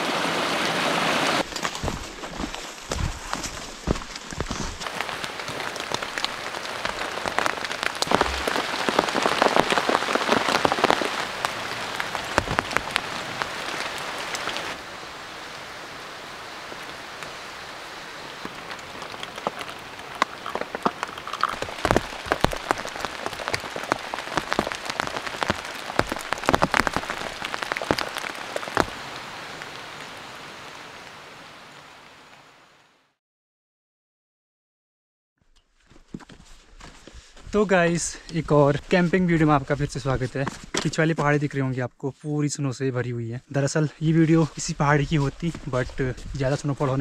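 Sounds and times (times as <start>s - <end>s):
heavy rain on a tarp: 0.0s - 32.7s, 44.4s - 47.0s.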